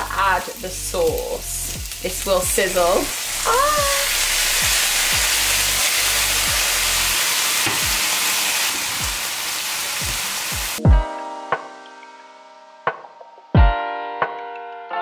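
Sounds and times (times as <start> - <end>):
sauce sizzling in frying pan: 0.0 - 10.8
background music with soft beat: 0.1 - 3.0, 4.6 - 9.3, 9.9 - 15.0
keyboard music with light ticks: 10.8 - 15.0.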